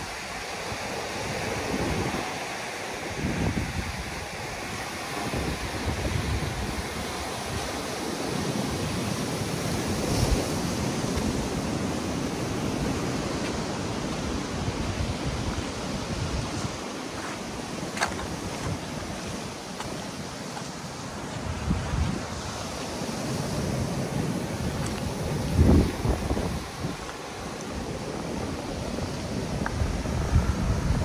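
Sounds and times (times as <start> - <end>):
surf breaking on rocky shore: 0.0 - 31.0
wind gusting on microphone: 0.0 - 31.0.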